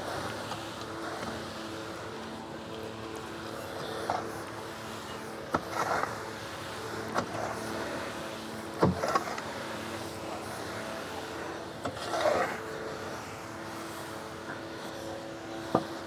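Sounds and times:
steady mechanical hum: 0:00.0 - 0:16.0
gritty scraping of soil: 0:03.4 - 0:13.2.

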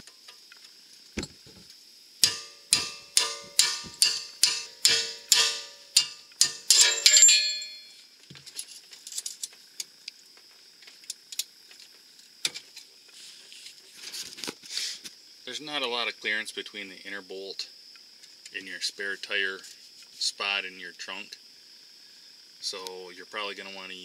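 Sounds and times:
insects chirping: 0:00.0 - 0:24.0
hammer striking metal punch: 0:01.2 - 0:01.6, 0:02.2 - 0:07.8.

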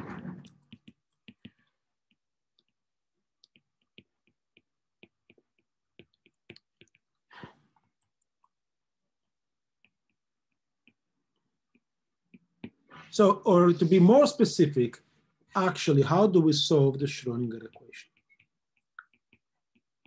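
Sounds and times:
stylus tapping on tablet screen: 0:00.1 - 0:07.4, 0:09.6 - 0:13.0, 0:17.7 - 0:20.0.

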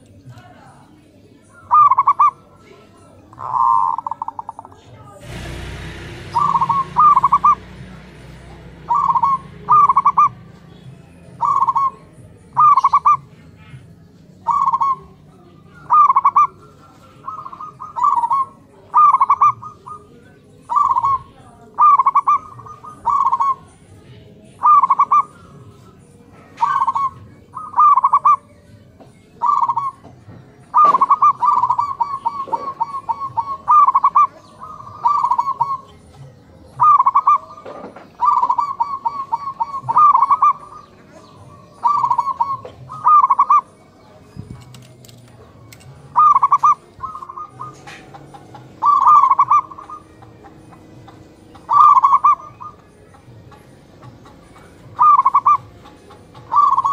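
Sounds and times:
doves cooing: 0:00.0 - 0:56.9.

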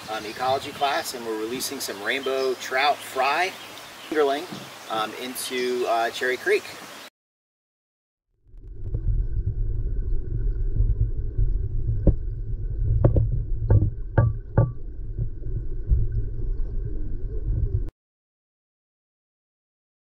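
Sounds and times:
muffled underwater creek rumble: 0:08.4 - 0:17.9.

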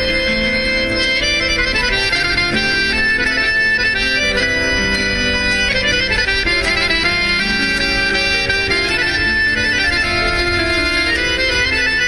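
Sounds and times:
instrumental folk music: 0:00.0 - 0:12.0.

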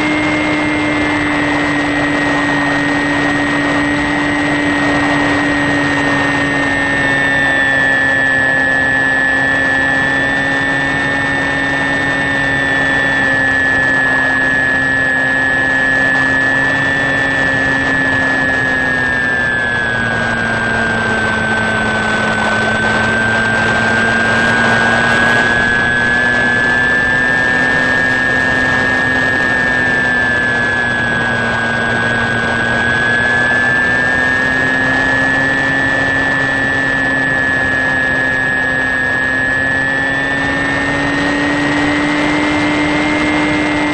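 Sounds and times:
electric motor and propeller whine: 0:00.0 - 0:43.9.

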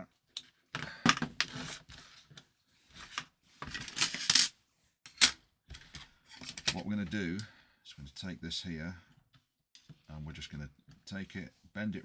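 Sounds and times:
metal tools clattering on a workbench: 0:03.6 - 0:04.5, 0:05.1 - 0:06.8.

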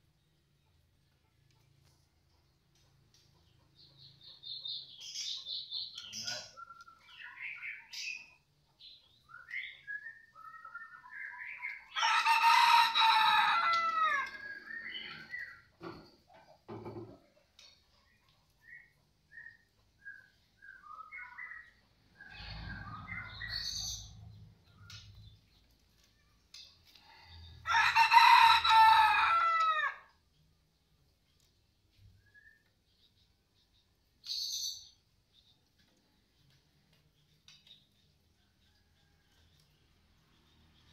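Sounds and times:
songbird chirping: 0:00.0 - 0:40.9
rooster crowing: 0:11.9 - 0:15.4, 0:27.6 - 0:30.1.

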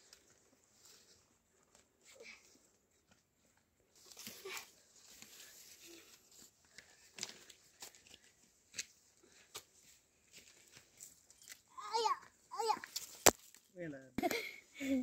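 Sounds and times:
twigs snapping: 0:12.8 - 0:13.7.

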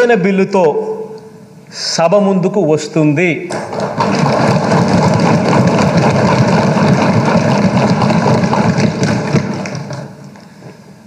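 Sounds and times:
people thumping desks: 0:03.5 - 0:10.2.

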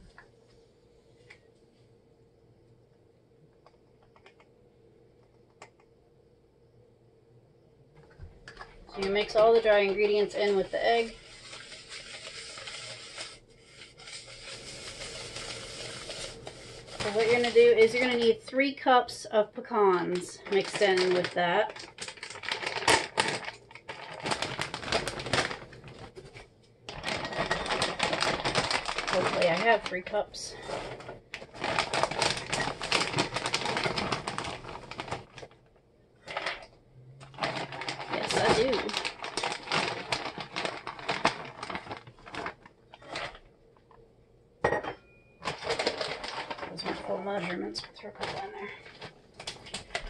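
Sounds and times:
plastic bag crinkling: 0:08.1 - 0:18.6, 0:19.7 - 0:44.0, 0:45.4 - 0:50.0.

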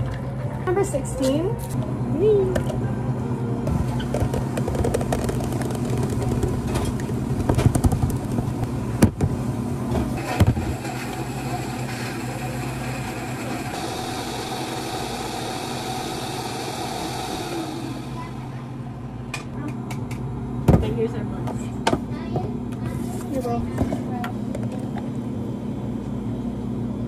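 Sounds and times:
blender motor running: 0:10.2 - 0:18.6.

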